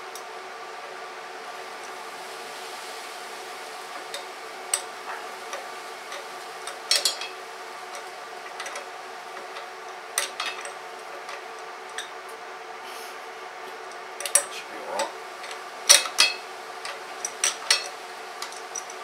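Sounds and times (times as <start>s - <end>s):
steady hum: 0.0s - 19.0s
metallic clicks and clinks: 5.5s - 12.1s, 14.2s - 19.0s.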